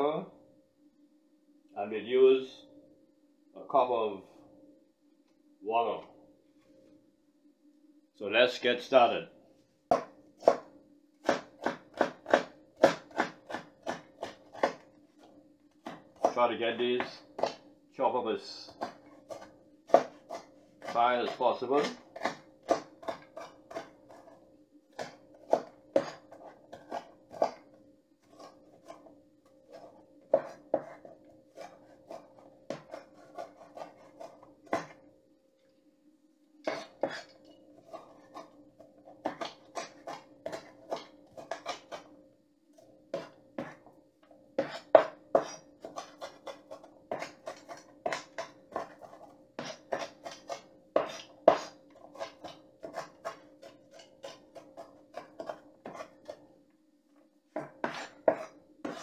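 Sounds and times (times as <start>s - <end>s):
knife chopping on wooden board: 9.9s - 14.9s, 15.8s - 16.4s, 17.0s - 17.7s, 18.7s - 24.3s, 24.9s - 27.7s, 29.7s - 35.0s, 36.6s - 42.1s, 43.1s - 43.9s, 44.6s - 56.4s, 57.6s - 59.0s.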